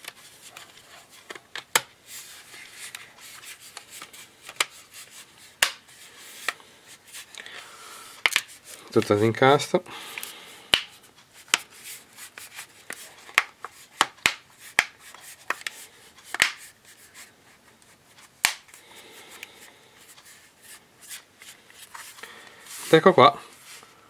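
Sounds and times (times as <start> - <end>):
plastic rubbing and handling: 10.2 - 24.0.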